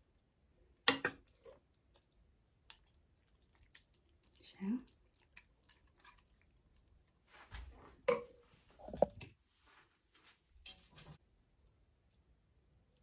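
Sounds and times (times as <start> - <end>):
wet squishing of sauce: 0.9 - 7.7.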